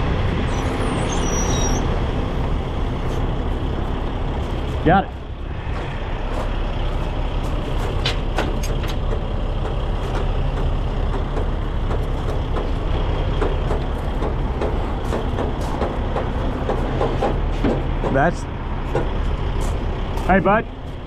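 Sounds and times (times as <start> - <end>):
diesel truck engine idling: 0.0 - 21.0.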